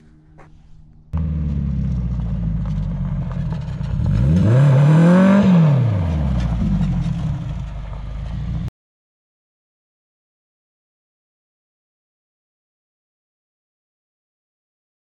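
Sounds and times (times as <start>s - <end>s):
car engine revving: 0.3s - 8.7s.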